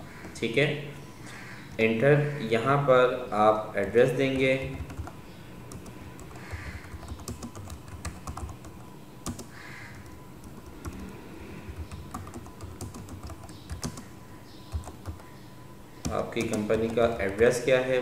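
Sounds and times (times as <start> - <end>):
computer keyboard typing: 4.2 - 15.3, 16.0 - 17.7.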